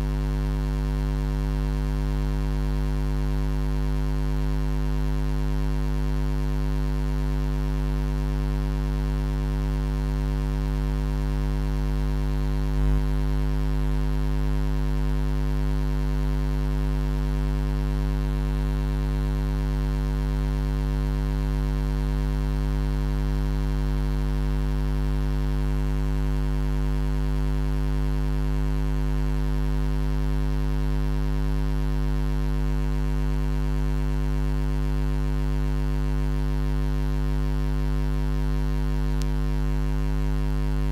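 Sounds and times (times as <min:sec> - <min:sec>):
low electrical hum: 0:00.0 - 0:13.5, 0:15.6 - 0:23.1, 0:37.5 - 0:40.9.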